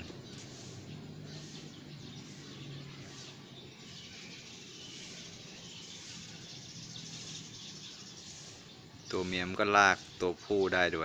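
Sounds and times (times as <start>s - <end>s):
faint high-pitched chirping: 0.0s - 11.0s.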